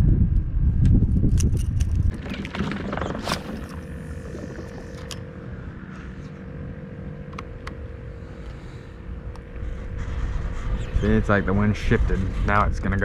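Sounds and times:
wind buffeting the microphone: 0:00.0 - 0:04.9, 0:09.5 - 0:13.0.

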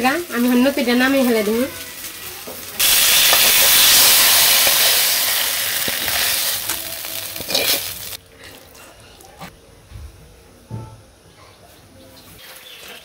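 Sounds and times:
curry sizzling: 0:00.0 - 0:08.2.

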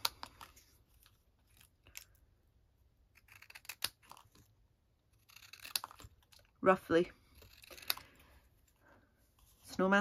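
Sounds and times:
scissors snipping cardstock: 0:03.1 - 0:04.5, 0:05.1 - 0:06.6, 0:07.4 - 0:08.1.

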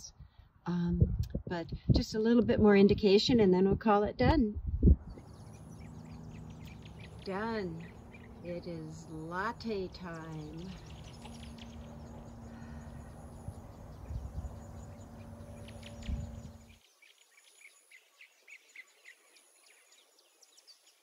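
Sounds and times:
steady low hum: 0:04.5 - 0:16.8
low rumble: 0:04.6 - 0:16.8
birds chirping: 0:05.0 - 0:21.0.

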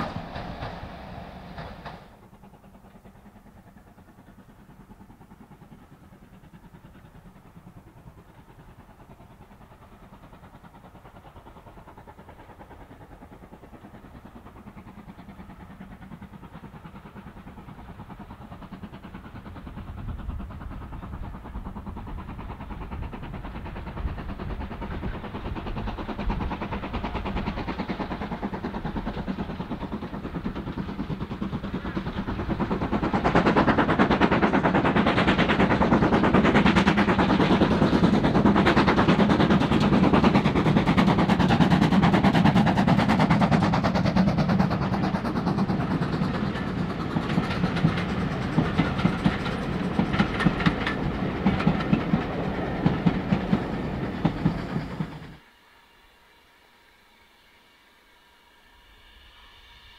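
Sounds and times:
steam train passing: 0:00.0 - 0:59.9
wheels clacking over rail joints: 0:23.4 - 0:55.4.

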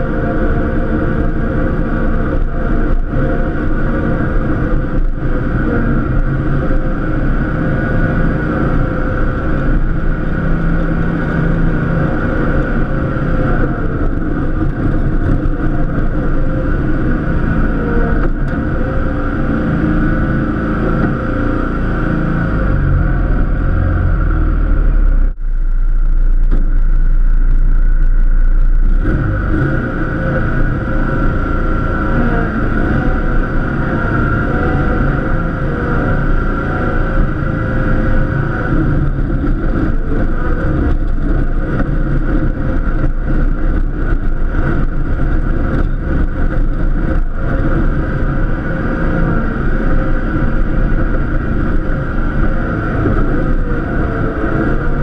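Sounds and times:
lawn tractor engine running: 0:00.0 - 0:55.0.

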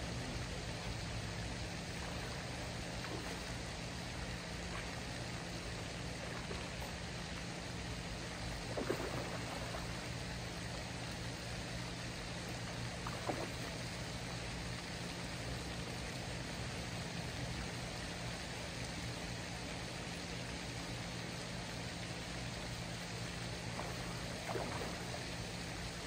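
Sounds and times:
steady rushing noise: 0:00.0 - 0:00.4
low steady hum: 0:00.0 - 0:26.0.

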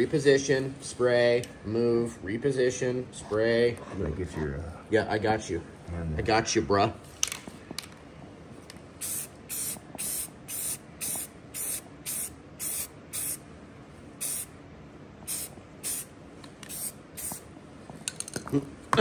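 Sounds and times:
spray paint can hissing bursts: 0:09.0 - 0:13.4, 0:14.2 - 0:14.5, 0:15.2 - 0:17.5.

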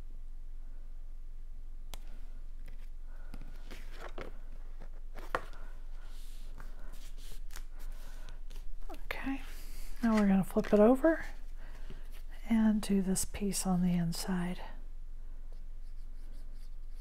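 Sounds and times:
cardstock rustling and crinkling: 0:02.6 - 0:12.3.

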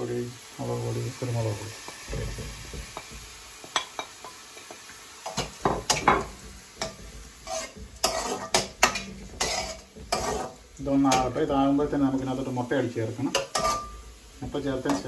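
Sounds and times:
light oil sizzle: 0:00.0 - 0:15.0
spoon scraping a metal pan: 0:05.3 - 0:11.3, 0:13.3 - 0:14.1.

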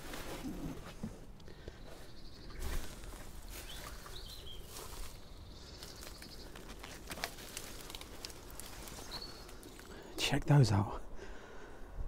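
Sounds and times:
small birds chirping: 0:00.4 - 0:10.9
footsteps crunching on twigs: 0:01.9 - 0:09.9
twigs snapping: 0:02.6 - 0:10.0.

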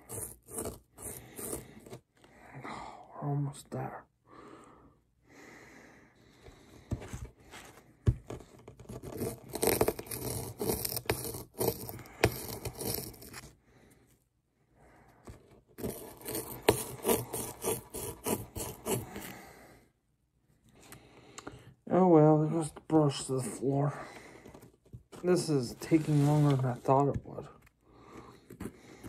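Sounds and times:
plastic pick scraping block: 0:00.0 - 0:02.1, 0:08.0 - 0:13.5, 0:15.3 - 0:19.3.

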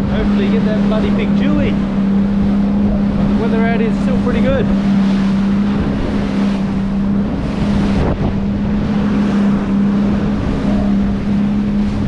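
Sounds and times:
outboard engine running: 0:00.0 - 0:12.0
water rushing against hull: 0:00.0 - 0:12.0
wind buffeting microphone: 0:00.0 - 0:12.0.

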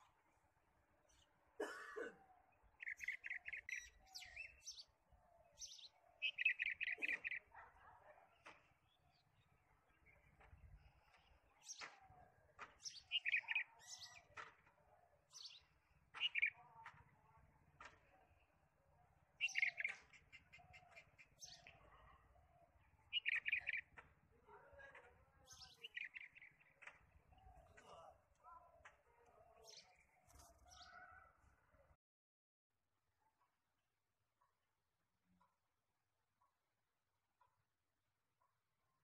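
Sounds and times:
bird chirping: 0:01.1 - 0:14.5, 0:15.1 - 0:16.6, 0:18.3 - 0:24.0, 0:24.7 - 0:28.2.

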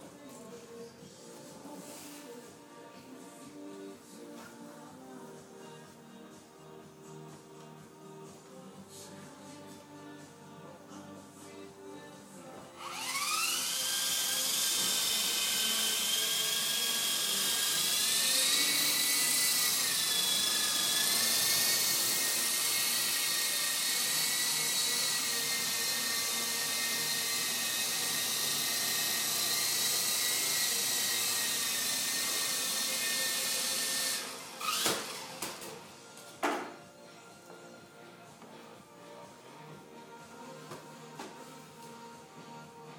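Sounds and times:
toy helicopter motors whining: 0:12.8 - 0:35.5.

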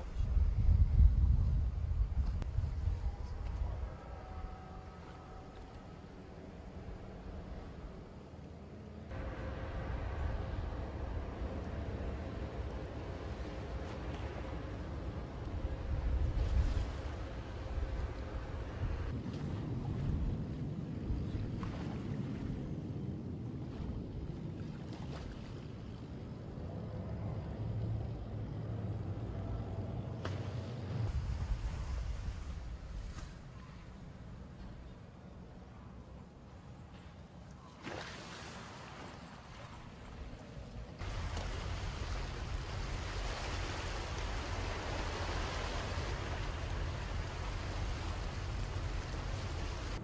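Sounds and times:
motorboat engine rumbling: 0:00.0 - 0:21.6, 0:25.6 - 0:33.0, 0:39.4 - 0:50.0
heavy low rumble: 0:09.0 - 0:21.6
sea water rushing: 0:09.1 - 0:20.3, 0:37.8 - 0:50.0.

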